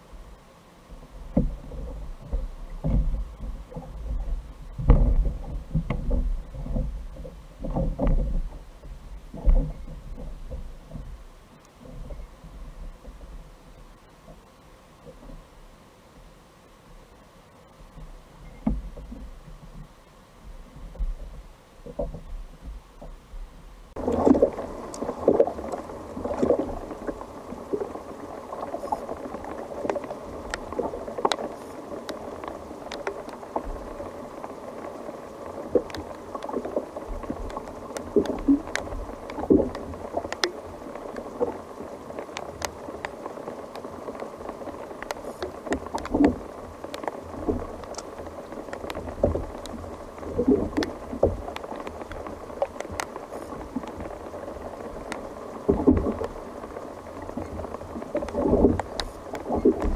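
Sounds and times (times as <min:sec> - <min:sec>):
water lapping against hull: 0:00.0 - 0:59.9
sharp ticks and knocks: 0:29.8 - 0:33.4, 0:37.2 - 0:41.3, 0:45.0 - 0:49.8.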